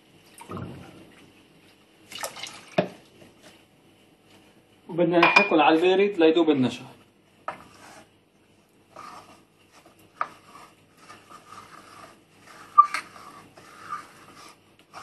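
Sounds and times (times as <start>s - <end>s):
spoon scraping pot bottom: 10.2s - 15.0s.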